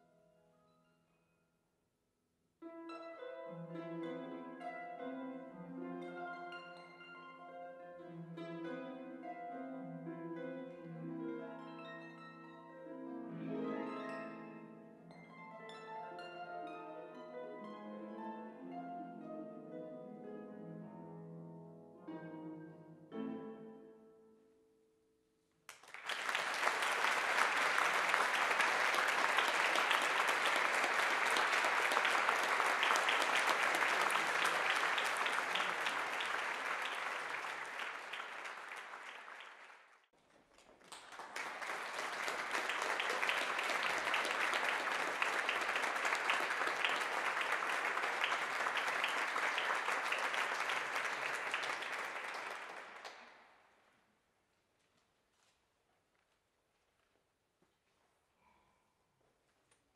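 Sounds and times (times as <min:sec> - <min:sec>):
audience applause: 0:25.7 - 0:40.0, 0:40.6 - 0:53.4.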